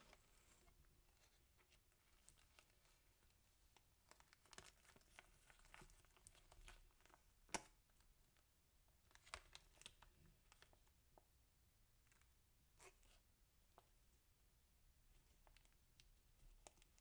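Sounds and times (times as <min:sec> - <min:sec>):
plastic pouch crinkling: 0:04.0 - 0:07.2.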